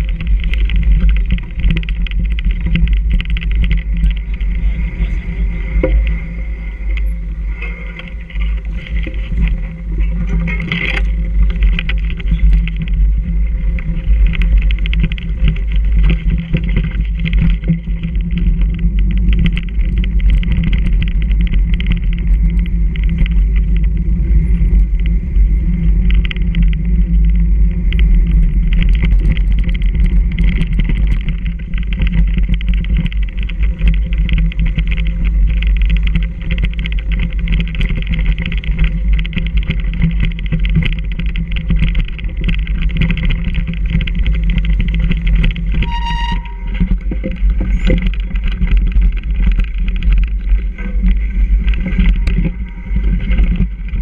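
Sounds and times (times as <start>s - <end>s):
bike rattling over rough trail: 0.0s - 54.0s
high squeal: 45.8s - 46.9s.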